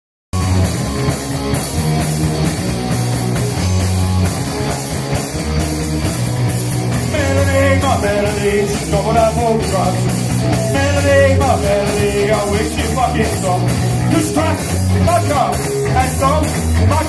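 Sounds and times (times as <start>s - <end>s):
bass guitar: 0.3s - 17.0s
distorted electric guitar: 0.4s - 17.0s
drum kit: 0.4s - 17.0s
person singing: 7.0s - 16.5s.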